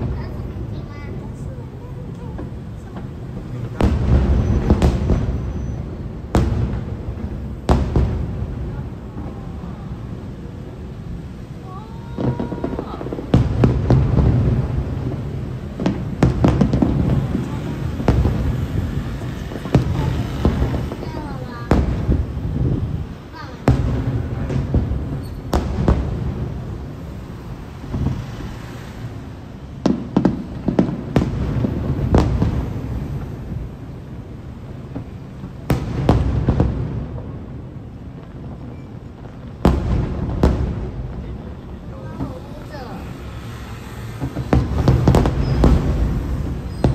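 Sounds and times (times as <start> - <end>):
firework pops: 0.0 - 9.4, 12.0 - 34.0, 34.6 - 46.9
firework booms: 0.0 - 46.9
firework shells bursting: 42.0 - 46.9.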